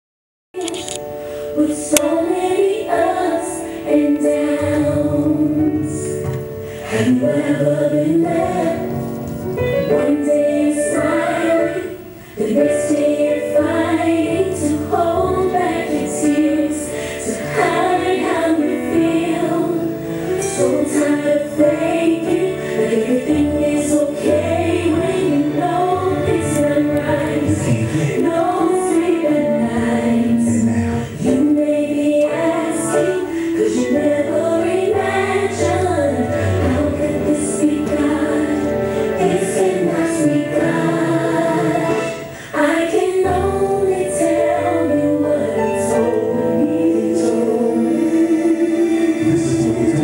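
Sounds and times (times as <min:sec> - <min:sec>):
gospel choir singing: 0:00.6 - 0:50.0.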